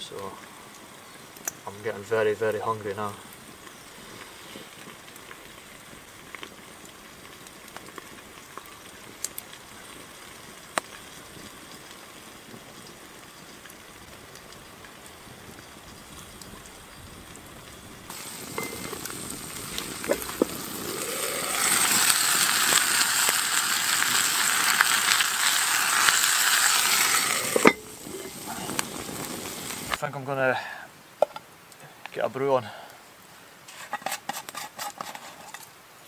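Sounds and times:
campfire crackling and sizzling: 0.0 - 36.0
stick clinking on pot lid: 18.6 - 18.9, 27.5 - 27.9.

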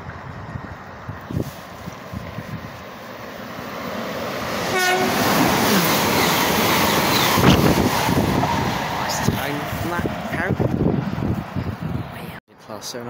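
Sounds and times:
train rumble: 0.0 - 12.4
train horn: 4.6 - 6.3.

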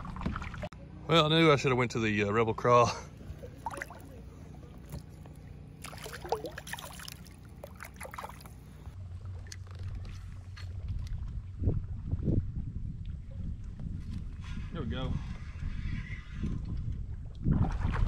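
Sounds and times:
water splashing and trickling: 0.0 - 0.8, 3.2 - 13.2.

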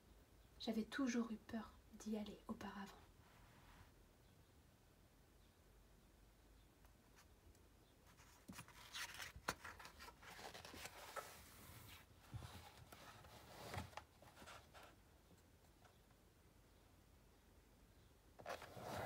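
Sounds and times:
paper rustling: 8.1 - 15.0.

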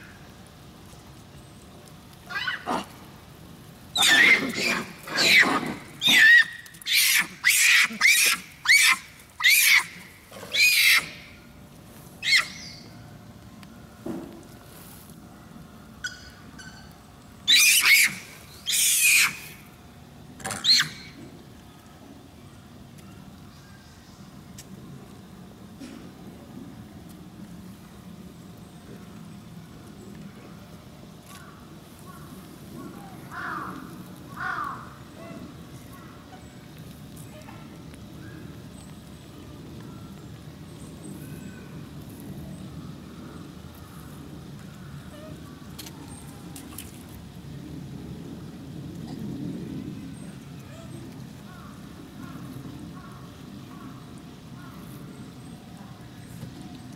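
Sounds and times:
low outdoor rumble: 0.0 - 56.9
crow cawing: 33.3 - 35.0.

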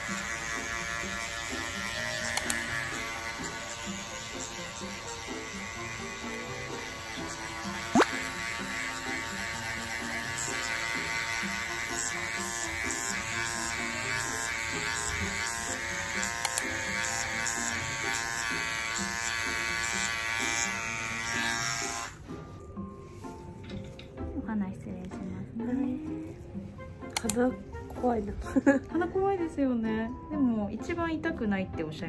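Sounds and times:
microneedling pen buzzing: 0.0 - 22.2, 27.1 - 27.4
sharp click: 27.1 - 27.4.

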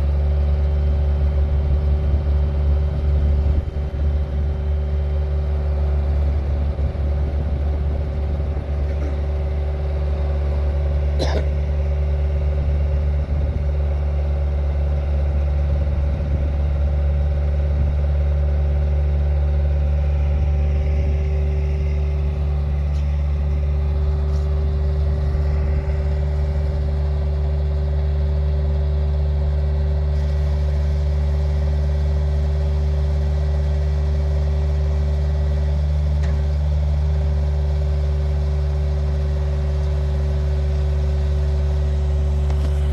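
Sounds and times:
diesel engine running: 0.0 - 42.9.

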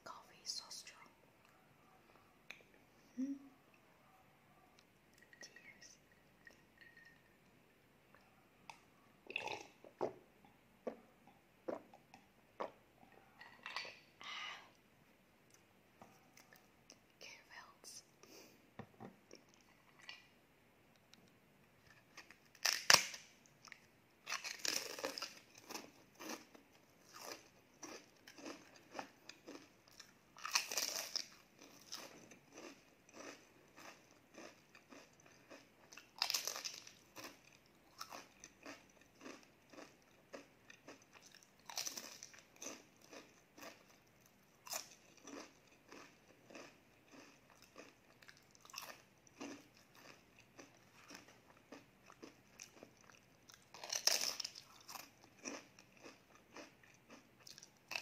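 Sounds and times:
chewing: 8.1 - 10.0, 11.8 - 14.1, 21.8 - 58.0
crunching bites of cracker: 21.9 - 44.0, 44.6 - 58.0.

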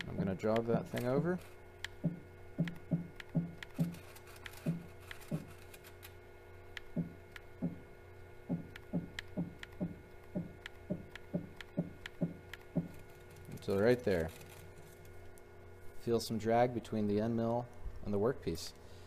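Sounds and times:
spindle hum: 0.0 - 19.0
milling machine axis thunks: 2.0 - 4.0, 4.6 - 5.5, 6.9 - 7.9, 8.5 - 13.0.

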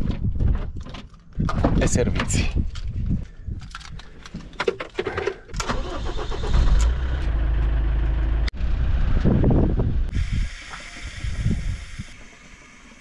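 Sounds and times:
engine running with low rumble: 6.0 - 10.5.

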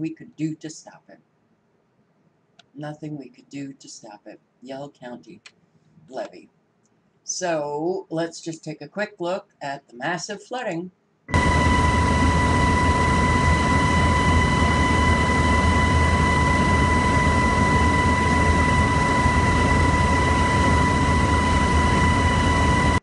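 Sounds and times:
aircraft engine drone and whine: 11.3 - 23.0.

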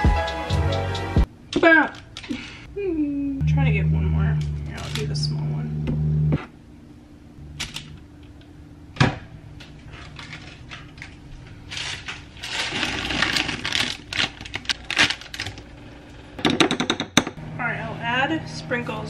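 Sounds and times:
plastic bag crinkling: 9.8 - 15.6.

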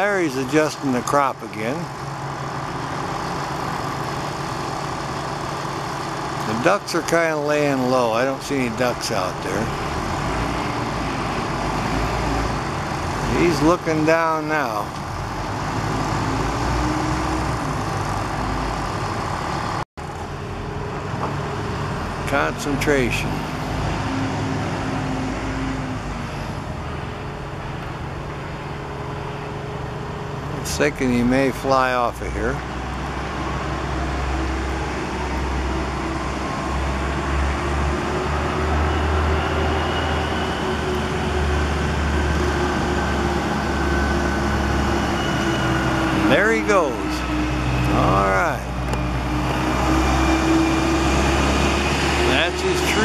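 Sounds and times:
traffic rumble: 0.0 - 53.0.

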